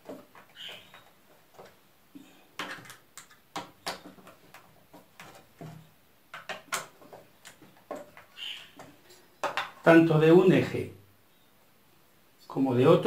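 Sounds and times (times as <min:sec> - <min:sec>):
tools clicking and knocking: 0:02.6 - 0:09.8.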